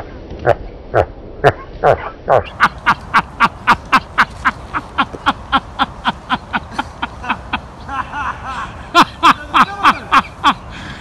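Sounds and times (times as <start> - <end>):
person laughing hard: 2.5 - 10.8.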